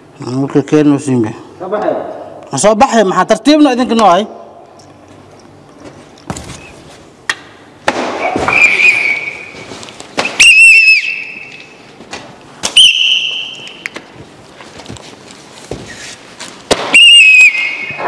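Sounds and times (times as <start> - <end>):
sharp cracks and smacks: 7.3 - 8.7, 10.0 - 10.5, 16.6 - 18.0
pea whistle blasts: 8.5 - 9.6, 10.2 - 11.6, 12.7 - 13.8, 16.9 - 18.0.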